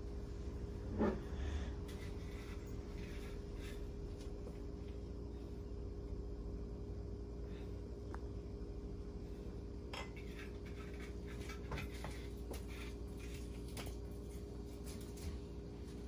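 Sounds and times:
steady low hum: 0:00.0 - 0:16.0
dishes and utensils clattering: 0:09.9 - 0:13.9.

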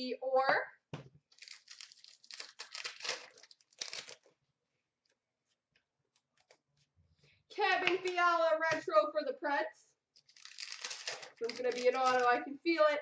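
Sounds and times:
trading cards rustling: 0:01.3 - 0:04.4, 0:10.2 - 0:12.6.

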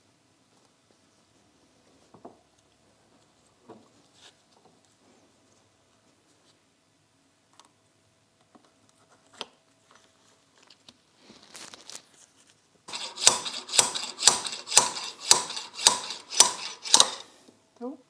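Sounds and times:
metal parts clicking: 0:12.9 - 0:17.3.

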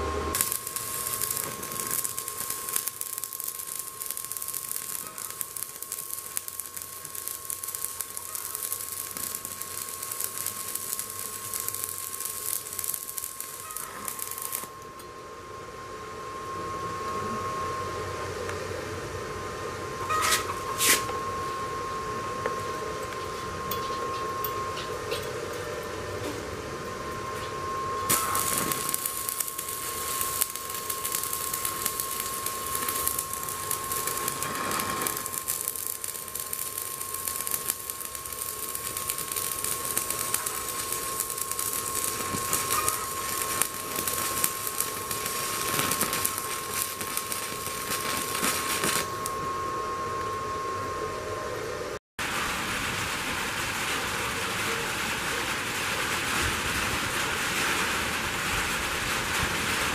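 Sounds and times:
welding arc crackling: 0:00.0 - 0:14.8, 0:28.1 - 0:49.4, 0:52.2 - 0:59.9
steady high tone: 0:00.0 - 0:52.0.

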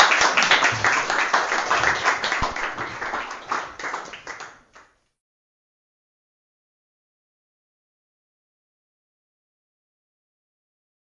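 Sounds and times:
audience applauding: 0:00.0 - 0:05.0.

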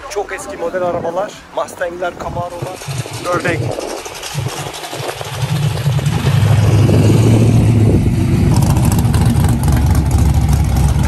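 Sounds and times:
loud car exhaust passing: 0:02.6 - 0:11.0.

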